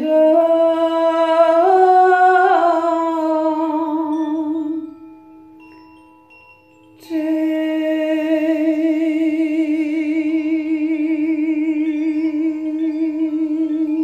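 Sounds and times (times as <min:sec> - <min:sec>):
woman singing a long note: 0:00.0 - 0:04.9, 0:07.0 - 0:14.0
faint high chime tones: 0:03.3 - 0:14.0.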